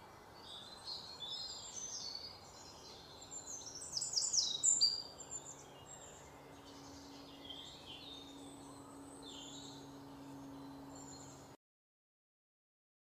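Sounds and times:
faint outdoor background noise: 0.0s - 11.6s
small birds chirping: 0.0s - 11.6s
steady low hum: 5.0s - 11.6s.

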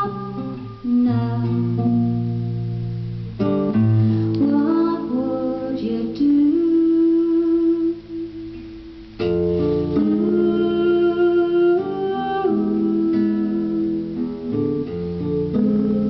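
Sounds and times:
acoustic guitar strummed chords: 0.0s - 16.0s.

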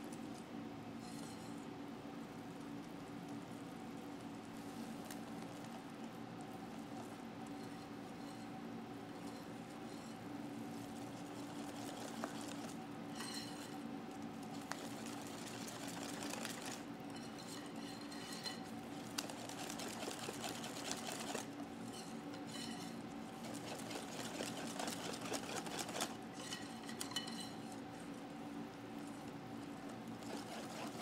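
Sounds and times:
whisk beating batter: 5.3s - 27.8s, 30.1s - 31.0s
whisk clinking against glass: 13.2s - 13.8s, 17.1s - 18.7s, 21.9s - 23.0s, 26.4s - 27.7s.

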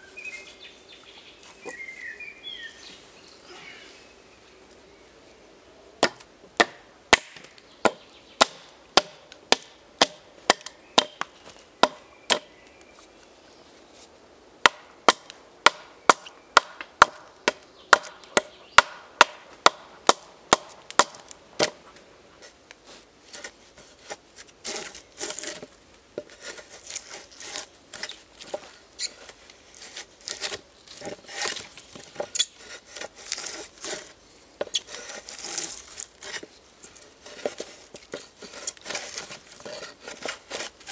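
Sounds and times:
hatchet chopping wood: 6.0s - 12.5s, 14.6s - 21.8s
blade scraping wood: 21.6s - 40.9s.

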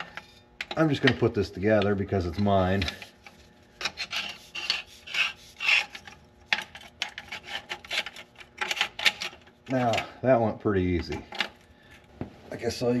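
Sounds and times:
metal rubbing and scraping: 2.1s - 10.0s.

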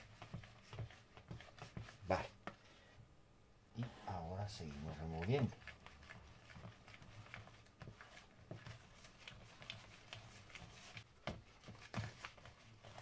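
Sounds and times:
hand squishing dough in bowl: 0.0s - 2.6s, 3.8s - 13.0s.

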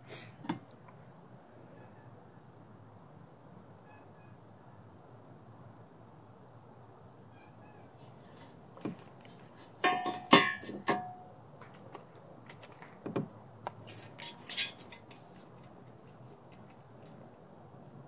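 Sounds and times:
steel clanking on metal bench: 9.8s - 11.3s.

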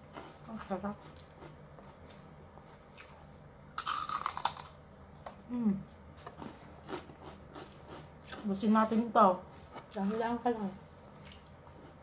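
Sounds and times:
chewing: 0.0s - 8.6s
crunching bites into cracker: 3.8s - 4.8s
person humming mm: 5.5s - 5.8s.

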